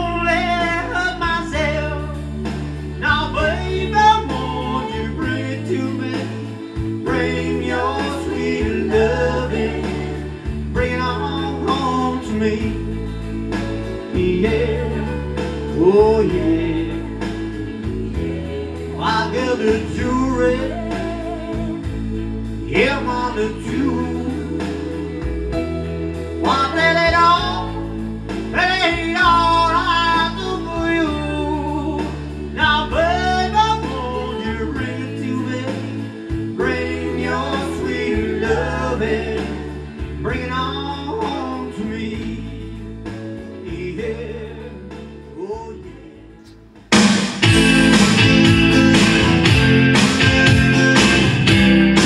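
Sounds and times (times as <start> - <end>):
man singing into a microphone: 0.0 - 2.3, 3.0 - 13.2, 14.0 - 17.4, 19.0 - 25.2, 26.4 - 42.8, 43.5 - 46.4
bass line: 0.0 - 52.0
electric guitar: 0.0 - 52.0.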